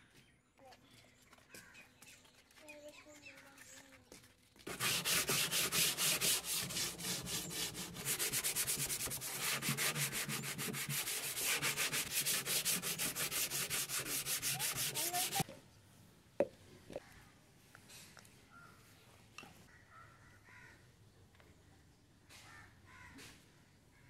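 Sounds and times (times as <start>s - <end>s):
sandpaper rubbing plastic: 4.7s - 15.4s.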